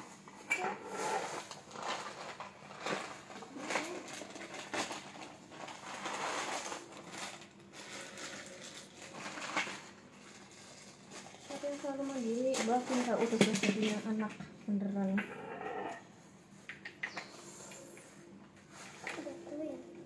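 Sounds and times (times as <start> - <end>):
plastic wrap crinkling: 1.3 - 14.3.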